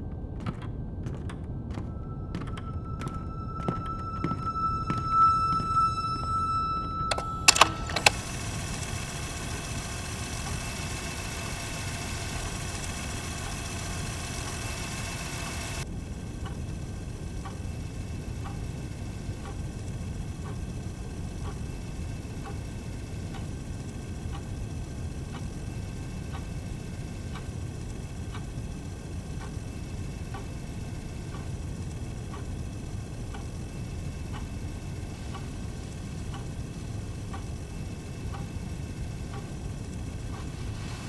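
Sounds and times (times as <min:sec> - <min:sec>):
low steady rumble: 0:00.2 - 0:41.0
clock ticking: 0:00.4 - 0:40.9.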